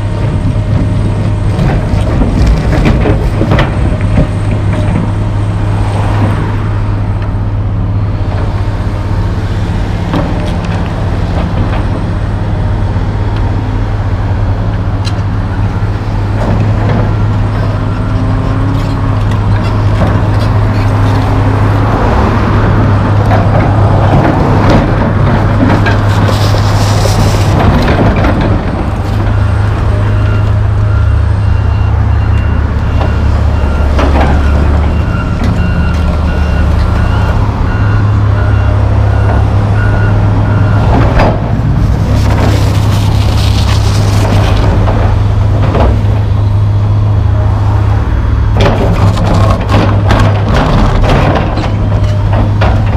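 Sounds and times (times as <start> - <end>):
excavator diesel engine running: 0.0 - 52.9
bucket scraping soil and rubble: 25.8 - 28.0, 41.7 - 44.9
backup alarm beeping: 30.1 - 40.9
metal clanks and knocks: 48.5 - 52.9.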